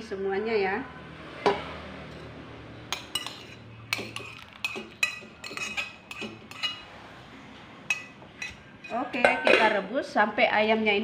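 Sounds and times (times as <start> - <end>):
metal spoon clinking on plate: 2.9 - 6.9, 7.9 - 9.8.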